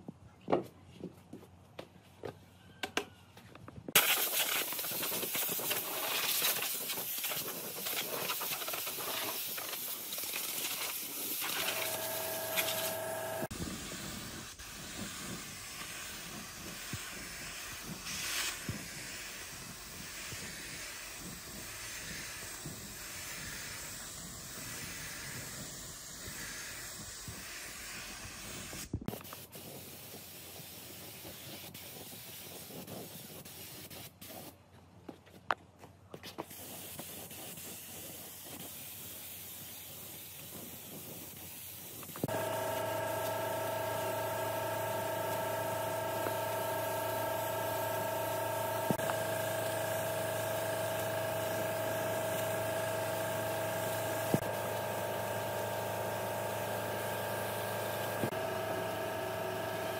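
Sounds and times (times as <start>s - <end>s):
spray gun hissing: 4.0s - 34.5s, 36.5s - 59.9s
humming tone: 11.6s - 13.5s, 42.3s - 54.9s.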